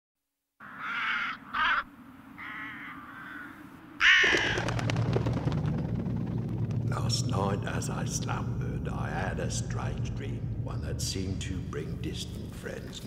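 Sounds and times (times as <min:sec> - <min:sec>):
crows cawing: 0:00.6 - 0:04.9
low rumble: 0:04.5 - 0:13.0.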